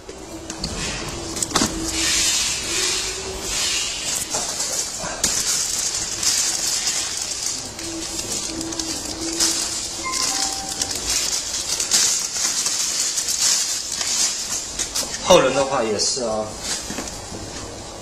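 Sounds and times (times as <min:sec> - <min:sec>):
steady hiss: 0:00.0 - 0:18.0
rustling and plastic parts clatter: 0:00.5 - 0:17.8
plastic bag crinkling: 0:00.9 - 0:17.2.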